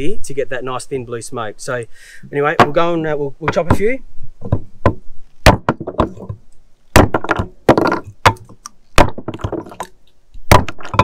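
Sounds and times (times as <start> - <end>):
hatchet chopping wood: 4.5 - 6.3, 7.0 - 11.0.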